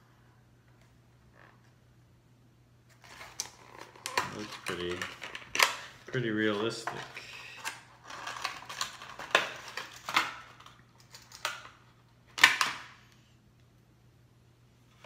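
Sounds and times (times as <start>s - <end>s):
plastic packaging crinkling: 2.9s - 11.7s.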